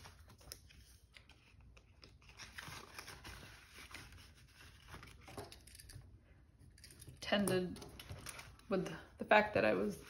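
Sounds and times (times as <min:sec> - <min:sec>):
paper and plastic rustling: 0:00.0 - 0:05.7
binder pages turning: 0:00.0 - 0:05.8.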